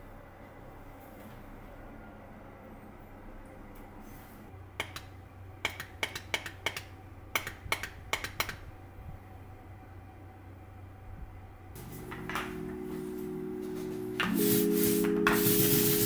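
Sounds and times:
keyboard key clicks: 4.8s - 8.6s.

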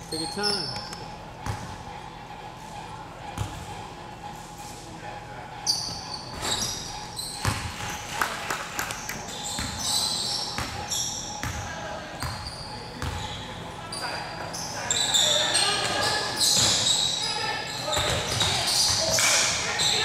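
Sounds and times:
sneakers squeaking: 0.0s - 4.8s, 5.5s - 20.0s
basketball bouncing on court: 1.4s - 1.8s, 3.4s - 3.7s, 5.8s - 13.4s, 15.8s - 17.0s, 17.8s - 19.3s.

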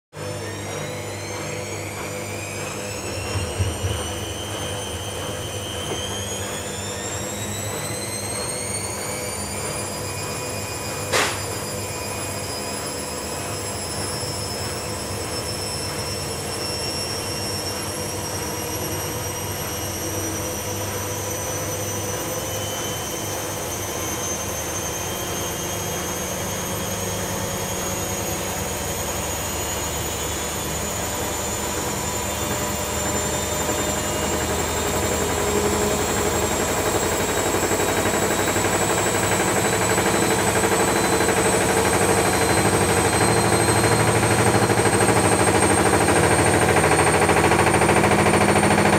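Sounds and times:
washing machine motor whine: 0.1s - 48.9s.

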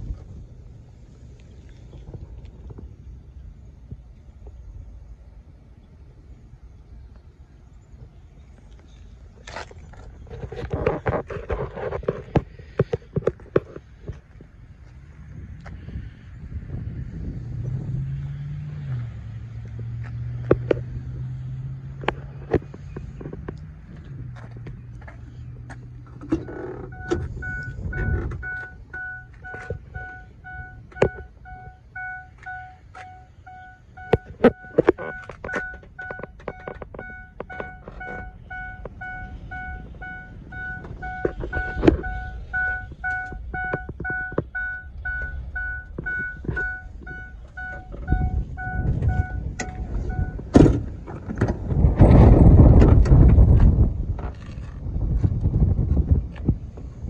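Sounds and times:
dashboard warning chime: 26.3s - 50.5s
rumbling: 34.3s - 57.0s.

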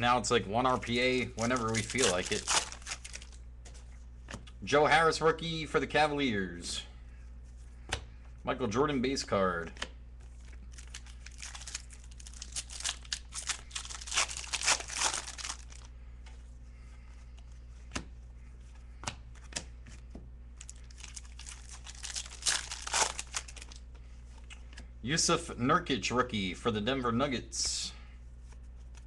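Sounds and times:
trading cards rustling: 0.8s - 3.4s, 10.2s - 15.9s, 20.6s - 23.9s.

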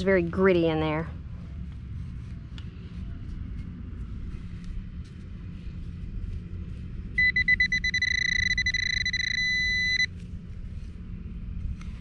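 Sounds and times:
pinpointer high beeping tone: 7.2s - 10.1s.

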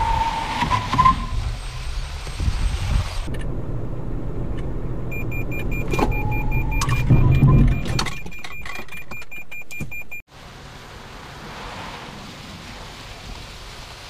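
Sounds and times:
loud low braking rumble: 0.0s - 7.8s
car cabin road noise: 0.0s - 14.0s
rapid high-pitched warning beep: 5.1s - 10.2s.

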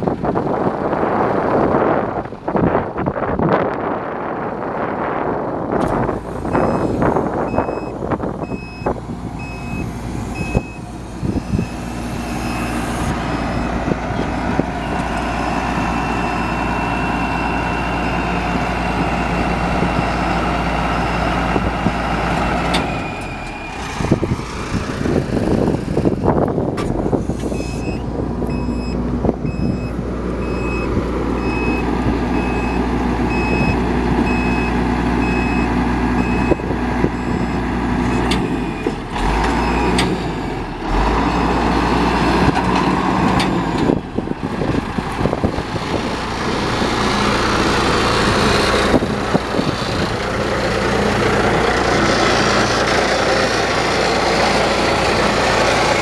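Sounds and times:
truck engine and hydraulics running: 0.0s - 56.0s
warning beep: 6.5s - 6.9s, 7.5s - 13.8s, 27.6s - 31.8s.

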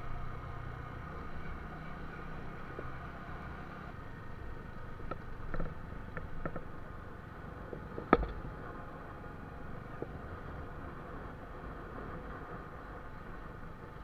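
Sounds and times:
motorcycle engine and road noise: 0.0s - 14.0s.

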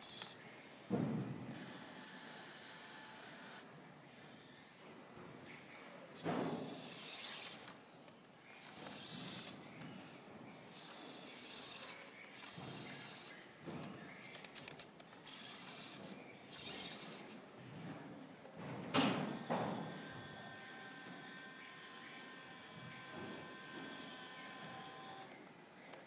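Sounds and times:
toy tractor motor whirring: 0.0s - 0.6s, 1.5s - 3.7s, 6.1s - 7.9s, 8.5s - 9.9s, 10.6s - 17.5s, 19.0s - 26.0s
rasping gear noise: 6.2s - 7.8s, 8.5s - 9.7s, 10.7s - 17.4s.

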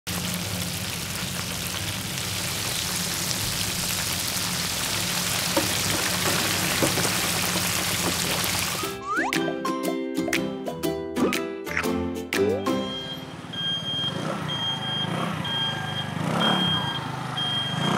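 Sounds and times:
shrimp sizzling in hot oil: 0.1s - 9.0s
oil popping: 3.0s - 9.5s.

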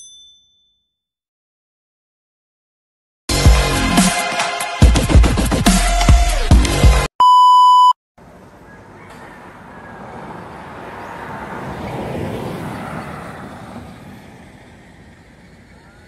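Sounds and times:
loud electronic beep: 7.2s - 8.0s
vehicle passing on road: 8.2s - 16.0s.

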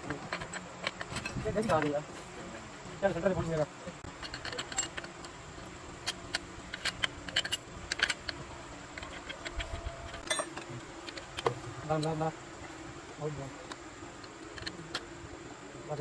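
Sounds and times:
tools clinking on metal engine parts: 0.0s - 2.0s, 4.1s - 5.4s, 6.0s - 12.3s
steady low hum: 0.0s - 16.0s.

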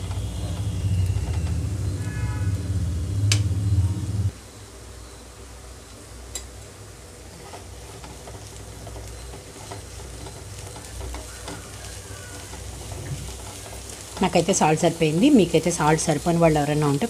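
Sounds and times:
vegetables sizzling in a pan: 0.0s - 17.0s
soft clicks: 3.2s - 3.5s
wooden spatula scraping a pan: 7.3s - 16.4s.

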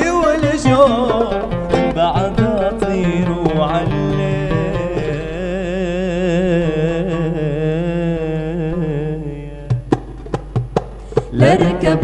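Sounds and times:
man singing with vibrato: 0.0s - 10.0s, 11.3s - 12.0s
oud: 0.0s - 12.0s
hand percussion strikes: 9.7s - 12.0s.

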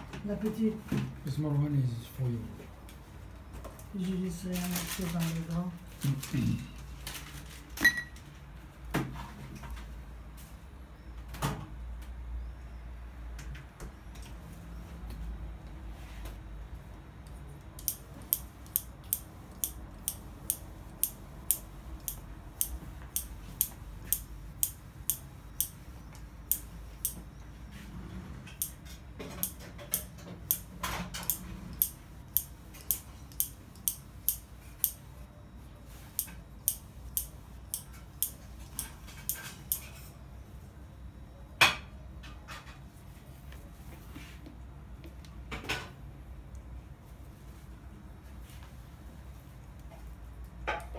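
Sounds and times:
rustle and scrape: 15.9s - 16.6s, 27.6s - 28.6s, 42.4s - 44.6s.

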